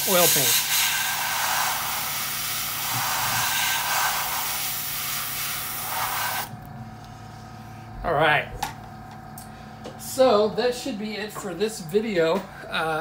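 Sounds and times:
airbrush spraying hiss: 0.0 - 6.5.

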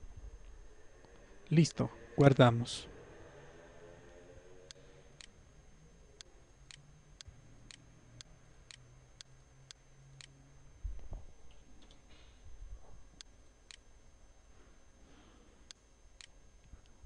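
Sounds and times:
soft clicks: 15.7 - 17.0.

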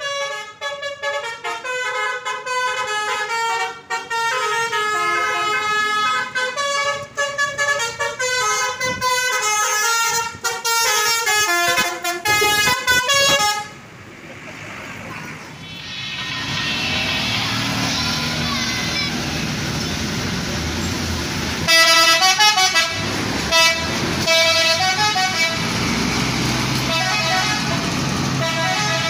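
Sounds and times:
bus horn playing a melody: 0.0 - 13.9, 21.7 - 25.8, 26.8 - 29.0.

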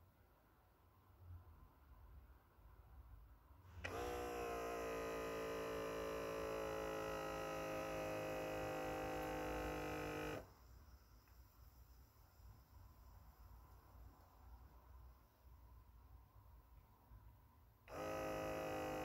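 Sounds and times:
electric air pump humming: 3.7 - 10.5, 17.9 - 19.0.

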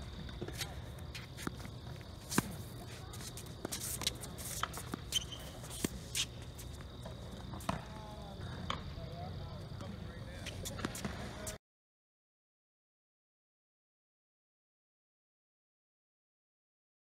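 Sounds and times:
shoes scuffing on court: 0.0 - 8.9, 9.7 - 11.6.

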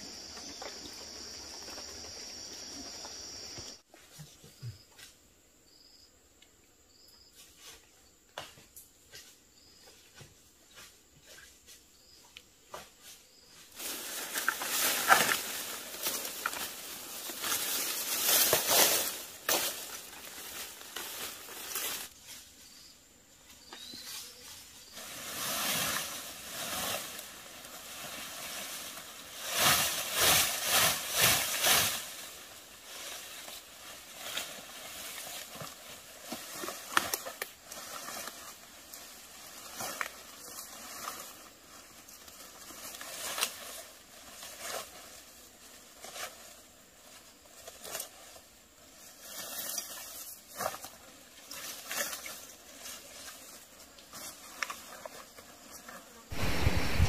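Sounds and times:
plants rustling and tearing: 13.8 - 22.2, 29.6 - 45.1.

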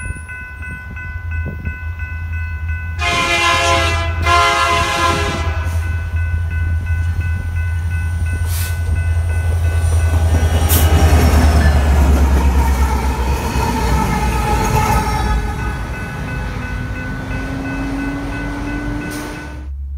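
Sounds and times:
diesel engine rumble: 0.0 - 19.9
locomotive horn: 3.0 - 6.0.

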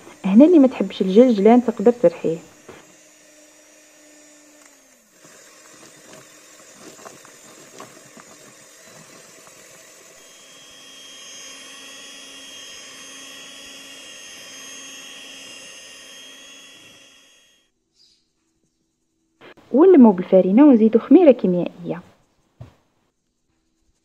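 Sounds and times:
electric hand mixer whining: 0.0 - 17.7.

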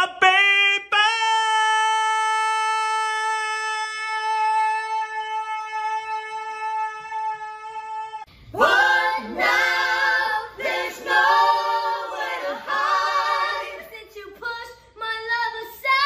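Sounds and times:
adults and children singing: 8.5 - 16.0.

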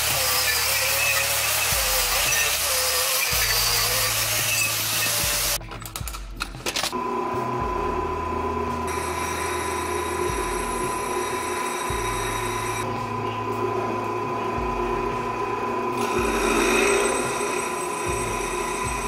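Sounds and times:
drill press boring through steel: 0.0 - 5.6, 8.9 - 12.8, 15.3 - 19.0.

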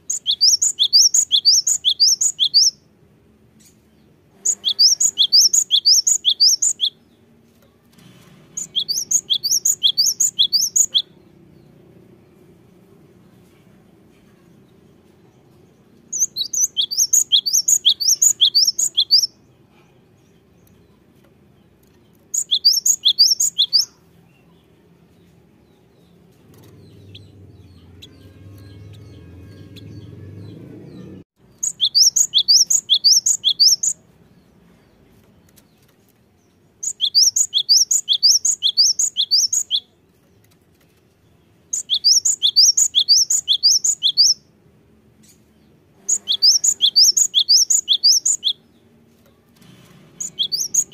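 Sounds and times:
bird singing high sharp notes: 0.0 - 2.8, 4.4 - 7.0, 8.6 - 11.2, 16.1 - 19.4, 22.3 - 24.0, 26.0 - 34.0, 36.8 - 39.9, 41.7 - 44.4, 46.0 - 48.7, 50.1 - 50.9.

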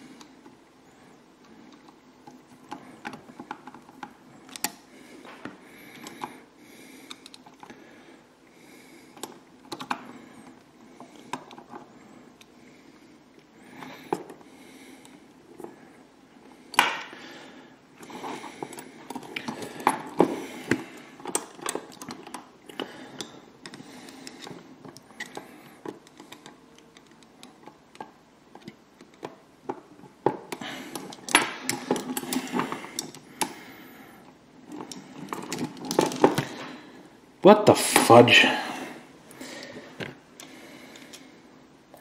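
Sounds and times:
small plastic parts clicking: 1.4 - 4.8, 7.0 - 7.7, 18.0 - 33.6.

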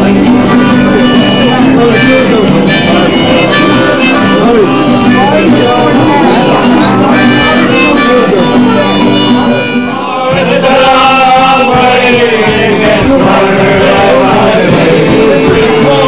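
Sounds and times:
acoustic guitar strummed: 0.0 - 16.0
men singing along: 10.0 - 16.0.

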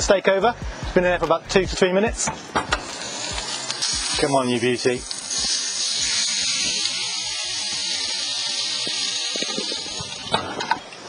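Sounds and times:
steak sizzling on griddle: 2.6 - 11.0.

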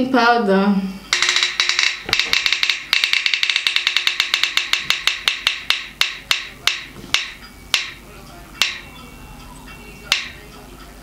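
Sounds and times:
prize wheel ticking: 1.1 - 8.0, 8.6 - 9.0.

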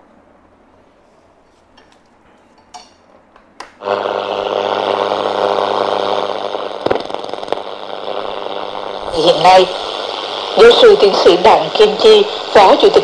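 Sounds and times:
radio static hiss and hum: 3.8 - 13.0
radio being handled clicks: 6.8 - 7.7.

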